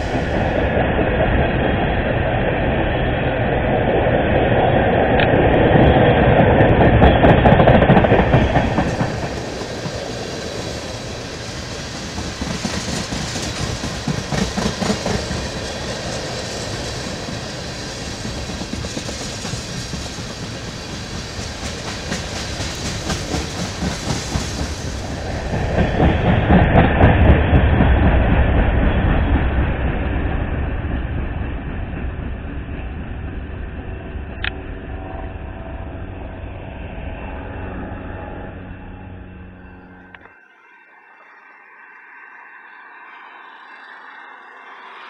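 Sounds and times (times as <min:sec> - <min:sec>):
train wheels rumbling on rails: 0:00.0 - 0:40.5
wheels clicking over rail joints: 0:06.6 - 0:27.9.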